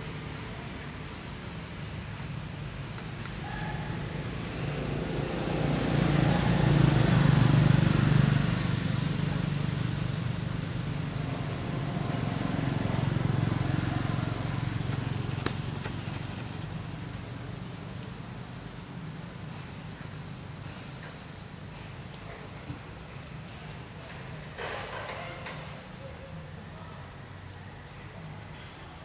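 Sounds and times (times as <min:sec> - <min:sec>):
vehicle engine rumble passing: 0:00.0 - 0:22.1.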